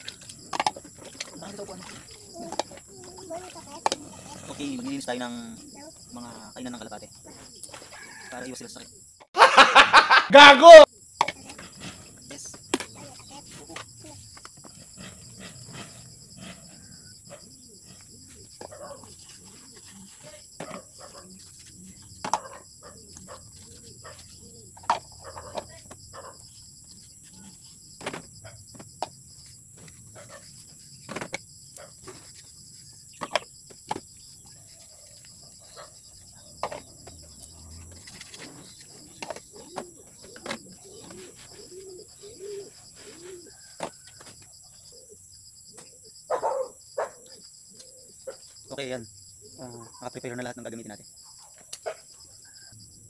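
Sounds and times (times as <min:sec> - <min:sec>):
plastic cups clacking: 0:00.0 - 0:04.2
pigeons cooing: 0:00.0 - 0:06.5, 0:07.2 - 0:08.3, 0:12.9 - 0:26.4, 0:34.4 - 0:48.4.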